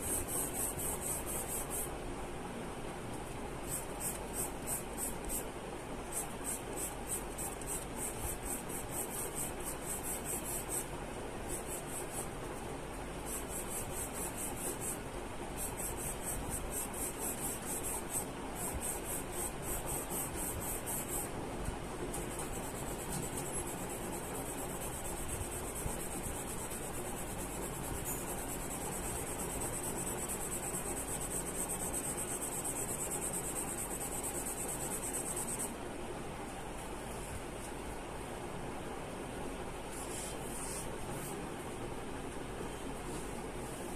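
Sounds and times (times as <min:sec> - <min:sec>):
pencil scratching on paper: 0:00.0 - 0:01.9, 0:03.6 - 0:05.5, 0:06.1 - 0:12.4, 0:13.2 - 0:21.3, 0:22.2 - 0:35.7.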